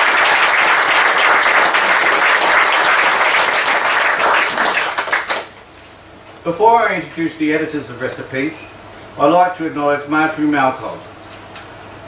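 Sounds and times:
audience applauding: 0.0s - 5.6s.

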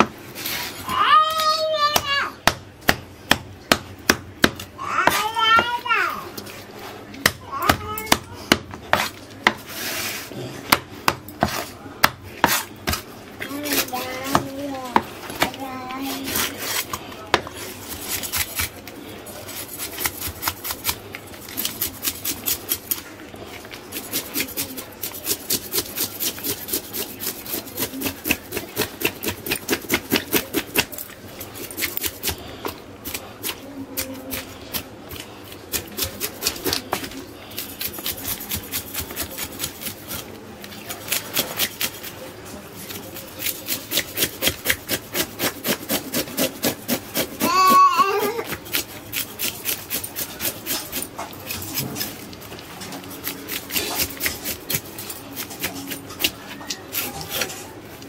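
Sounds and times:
knife scraping fish scales: 0.3s - 1.6s, 8.9s - 10.5s, 12.4s - 14.1s, 16.0s - 23.0s, 23.8s - 57.7s.

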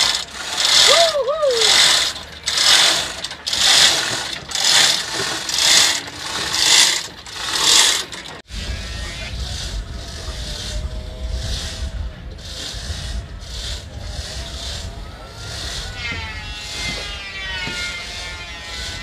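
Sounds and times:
hoist ratchet clattering: 0.0s - 8.5s
low wind rumble: 0.0s - 19.0s.

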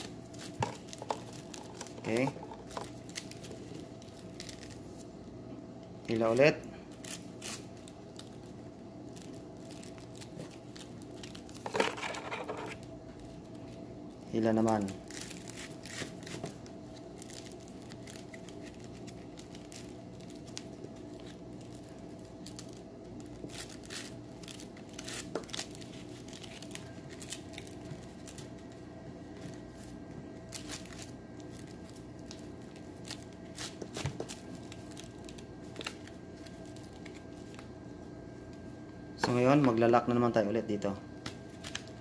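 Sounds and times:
faint hum: 0.0s - 42.0s.

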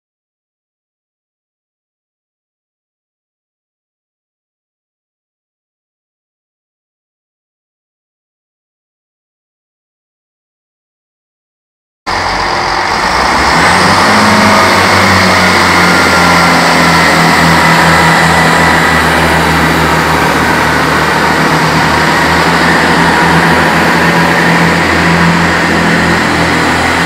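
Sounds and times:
thin high whine rising: 12.1s - 27.0s
train diesel engines running: 12.1s - 27.0s.

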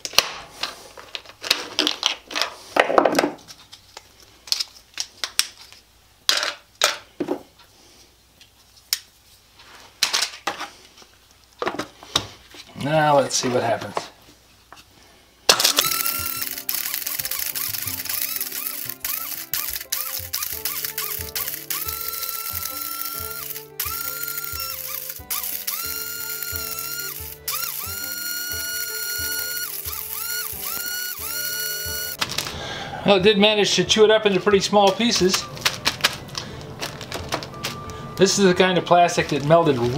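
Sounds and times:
plastic pieces clattering into jar: 0.0s - 3.3s, 32.2s - 32.6s, 34.9s - 38.4s
blender chopping plastic: 15.5s - 32.4s.

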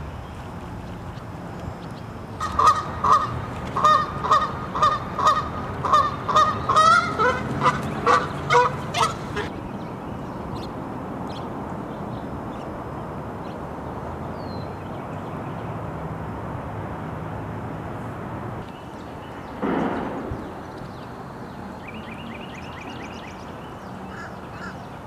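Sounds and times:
outdoor background noise: 0.0s - 25.0s
goose honking: 2.4s - 9.5s.

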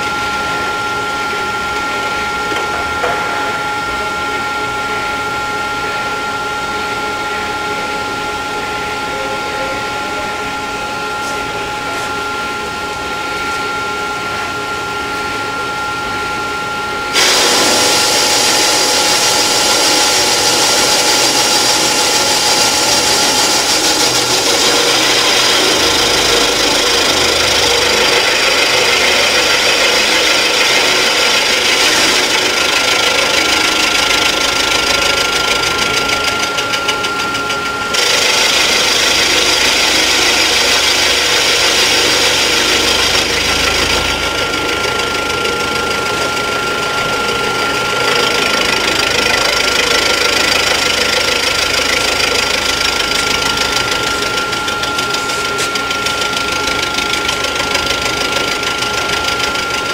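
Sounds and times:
machine whine: 0.0s - 59.9s
spindle hum: 0.0s - 59.9s
harsh metal cutting noise: 17.0s - 59.9s.

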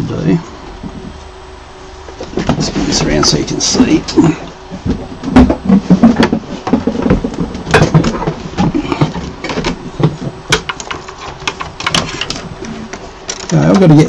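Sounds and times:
metal housing knocking and clattering: 4.8s - 12.4s.

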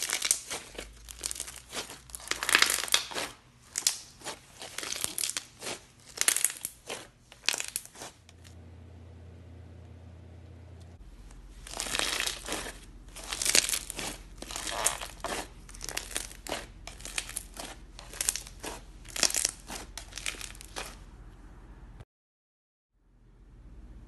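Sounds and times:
foam beads crackling and popping: 0.0s - 8.4s, 11.2s - 21.0s
low steady hum: 0.0s - 22.0s, 23.0s - 24.0s.

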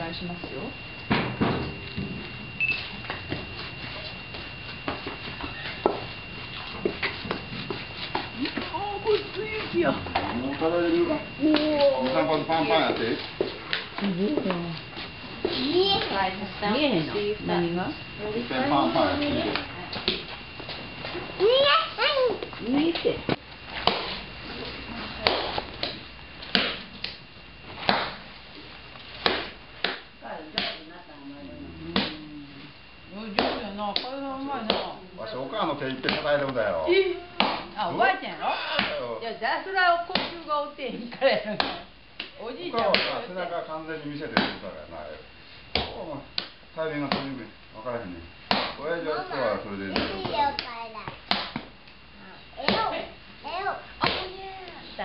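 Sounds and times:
light slaps on dough: 23.8s - 24.2s, 27.8s - 28.2s, 29.2s - 30.8s, 33.3s - 35.0s, 40.1s - 40.4s, 41.5s - 43.2s, 45.7s - 47.4s, 48.5s - 48.8s, 50.0s - 51.8s, 54.0s - 54.4s
mallet pounding rice dough thuds: 25.2s - 26.8s, 27.8s - 28.2s, 33.3s - 35.0s, 36.0s - 36.3s, 37.4s - 37.7s, 38.8s - 39.0s, 40.1s - 40.4s, 41.6s - 43.2s, 44.4s - 44.6s, 45.7s - 47.4s, 48.5s - 48.8s, 51.1s - 51.7s.

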